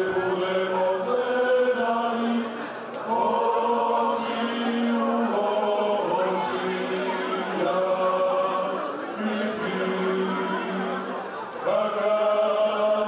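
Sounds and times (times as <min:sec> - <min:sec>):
male choir singing in harmony: 0:00.0 - 0:13.0.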